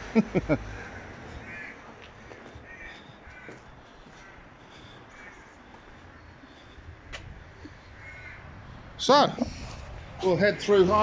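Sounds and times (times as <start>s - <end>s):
crows cawing: 0.7s - 8.7s, 10.2s - 11.0s.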